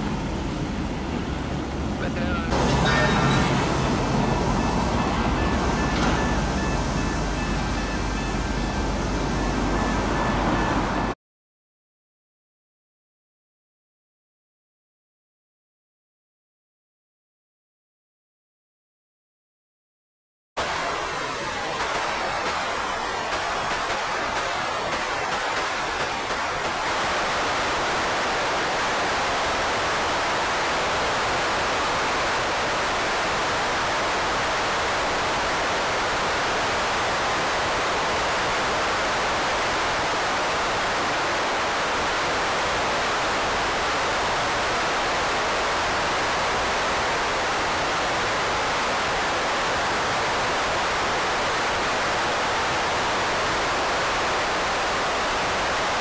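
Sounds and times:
static hiss: 20.6s - 56.0s.

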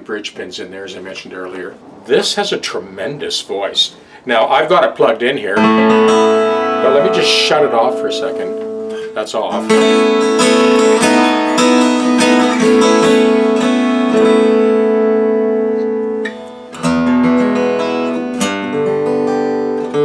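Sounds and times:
acoustic guitar strummed chords: 5.4s - 20.0s.

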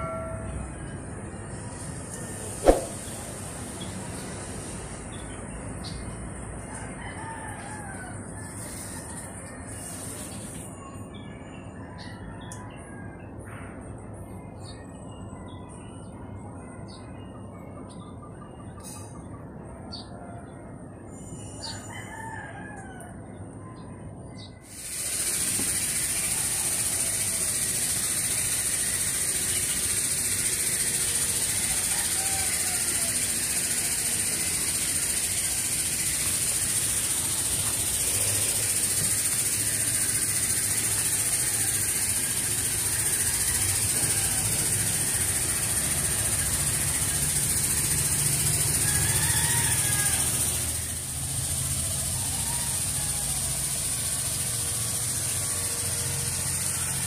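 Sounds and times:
rooster crowing: 6.7s - 9.5s, 21.6s - 23.2s, 30.6s - 57.0s
loud high-pitched hiss: 24.7s - 57.0s.

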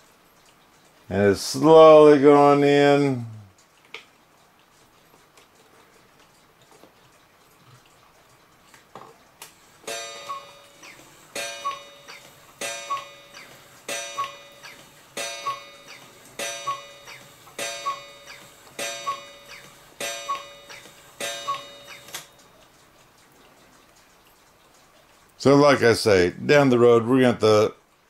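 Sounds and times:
clock click: 9.4s - 24.6s
cuckoo clock calls: 9.8s - 22.5s.

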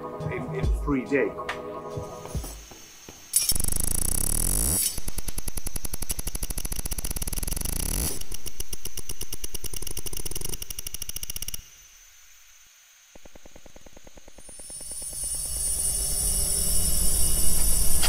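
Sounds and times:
glitchy electronic clicks: 2.3s - 12.0s, 13.1s - 18.0s.

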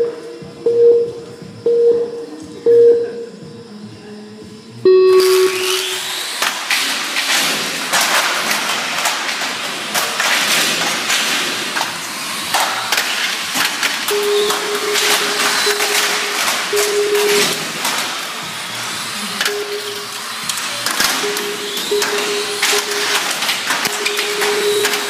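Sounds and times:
radio-controlled cars racing: 5.2s - 25.0s.

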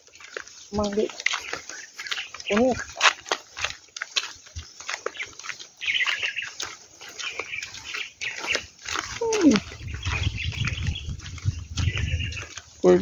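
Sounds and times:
animal calls: 5.1s - 11.2s
low rumble: 9.5s - 12.4s.

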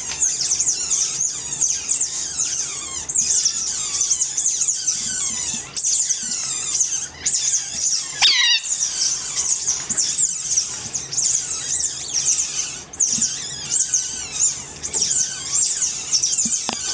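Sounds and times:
otters squeaking chirps: 0.0s - 16.9s
otter call falling in pitch: 8.2s - 9.0s.

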